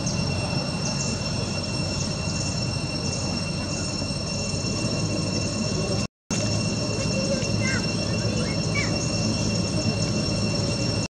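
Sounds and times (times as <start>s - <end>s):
high insect drone: 0.0s - 11.0s.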